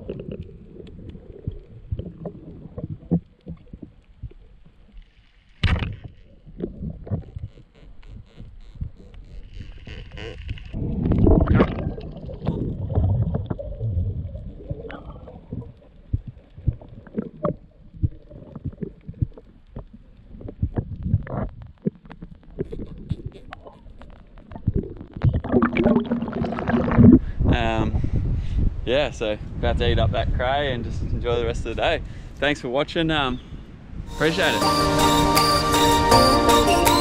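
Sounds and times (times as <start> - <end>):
gurgling bubbles: 0.0 - 4.7, 5.7 - 27.5
dull underwater knocks and thumps: 0.0 - 4.8, 5.6 - 27.4.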